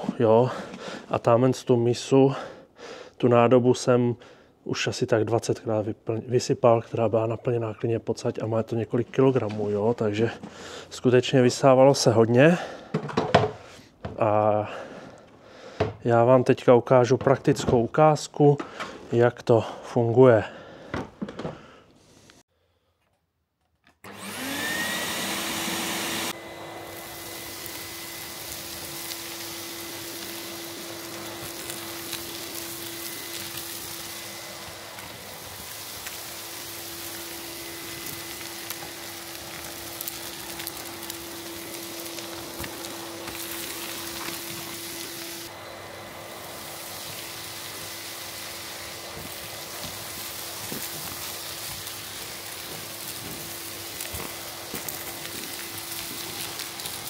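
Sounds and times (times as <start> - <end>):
vacuum cleaner motor whine: 24.0 - 57.0.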